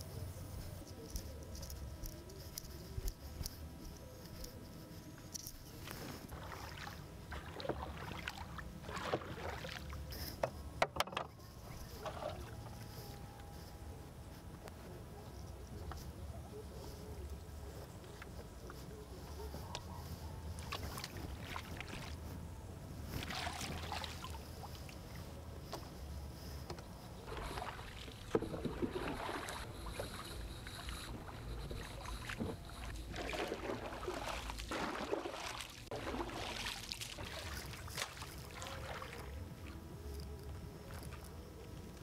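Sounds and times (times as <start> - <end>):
water splashing around boat: 4.9 - 13.7, 17.7 - 22.4, 23.0 - 42.0.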